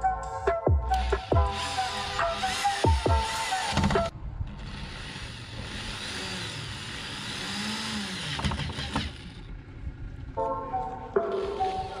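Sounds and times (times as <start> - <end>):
electric drill driving screw: 0.9 - 9.5, 11.3 - 12.0.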